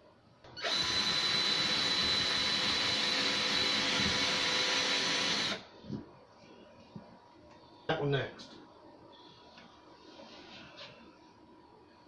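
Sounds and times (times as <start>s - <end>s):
cordless drill driving screw: 0.6s - 5.6s.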